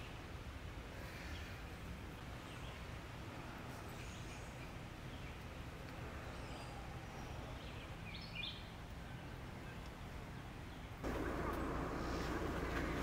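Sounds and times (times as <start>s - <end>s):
outdoor background noise: 0.0s - 13.0s
bird chirp: 3.8s - 12.5s.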